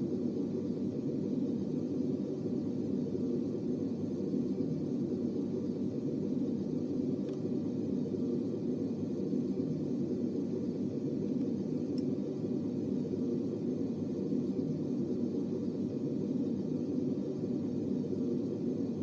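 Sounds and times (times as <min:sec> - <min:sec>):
faint ticks: 0:07.2 - 0:07.5, 0:11.2 - 0:12.3.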